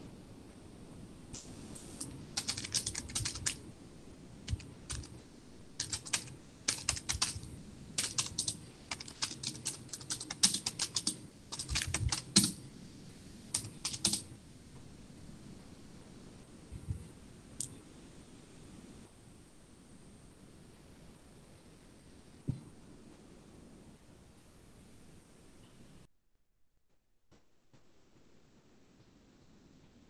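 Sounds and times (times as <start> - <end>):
typing on computer keyboard: 1.9 - 3.6, 4.5 - 5.2, 5.8 - 12.6, 13.5 - 14.3.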